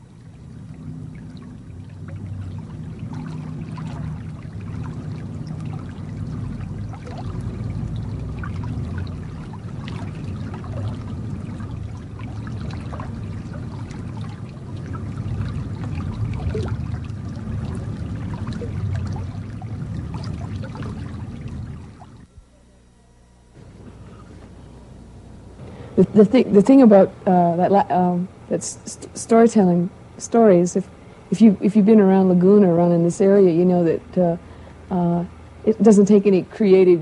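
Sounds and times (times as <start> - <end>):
shallow stream flowing: 0.0 - 22.3
water trickling and splashing: 0.0 - 22.3.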